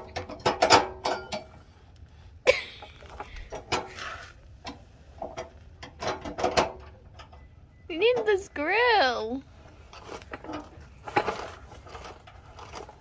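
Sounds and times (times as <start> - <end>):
car part clicking and clinking: 0.0 - 1.7, 4.6 - 8.3
short metal scrape: 9.8 - 13.0.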